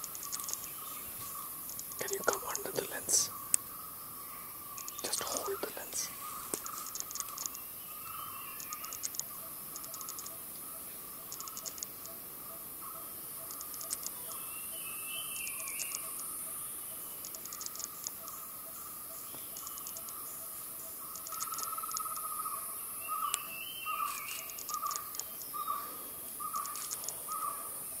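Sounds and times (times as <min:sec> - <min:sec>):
rapid clicking chirps: 0:00.0 - 0:03.7, 0:04.7 - 0:07.7, 0:08.5 - 0:10.6, 0:11.2 - 0:12.2, 0:13.4 - 0:14.4, 0:15.2 - 0:16.3, 0:17.1 - 0:18.5, 0:19.2 - 0:22.4, 0:23.3 - 0:25.6, 0:26.4 - 0:27.4
insect hiss and drone: 0:00.0 - 0:28.0.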